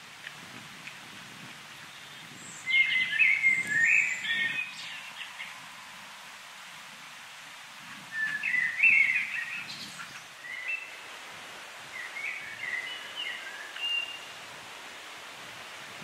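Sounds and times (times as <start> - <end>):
background hiss: 0.0 - 16.0
songbird singing: 0.8 - 6.2, 7.9 - 11.2, 11.8 - 14.4.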